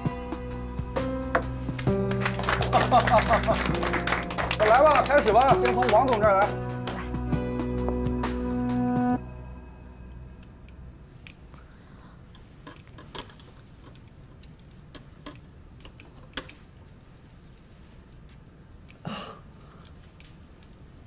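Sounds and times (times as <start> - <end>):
low steady hum: 0.0 - 12.9
screwdriver clicks and taps: 15.0 - 16.6.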